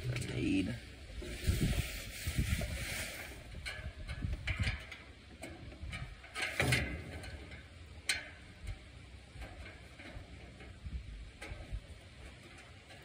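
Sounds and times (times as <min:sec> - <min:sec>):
wind rumbling on microphone: 0:00.0 - 0:07.6, 0:08.4 - 0:13.0.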